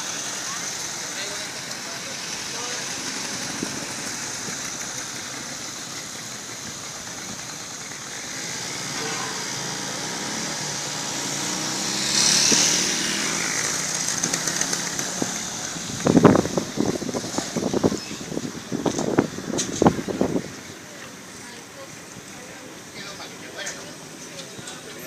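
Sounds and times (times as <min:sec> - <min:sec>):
motorcycle engine: 0:00.0 - 0:25.0
vehicle engines running: 0:00.0 - 0:25.0
vehicle passing: 0:08.1 - 0:20.5.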